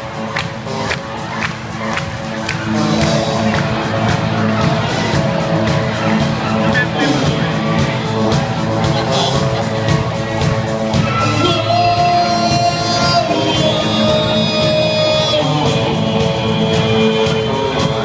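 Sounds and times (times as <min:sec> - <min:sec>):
drum kit: 0:00.0 - 0:18.0
electric guitars: 0:00.0 - 0:18.0
keyboard: 0:00.0 - 0:18.0
person singing: 0:10.8 - 0:18.0.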